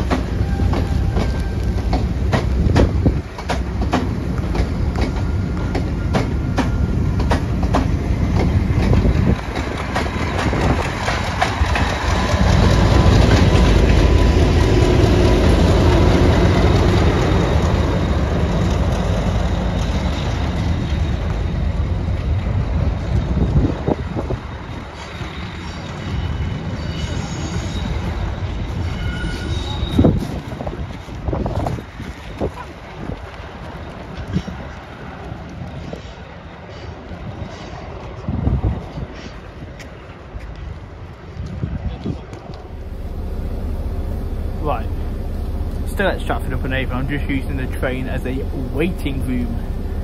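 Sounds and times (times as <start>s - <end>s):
train wheels clicking over rail joints: 0.0s - 26.2s
diesel engine rumble: 7.6s - 23.0s, 42.6s - 50.0s.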